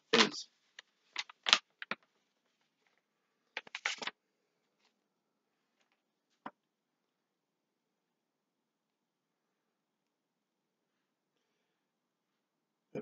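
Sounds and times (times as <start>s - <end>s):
paper rustling and crinkling: 0.2s - 3.0s, 3.6s - 4.2s.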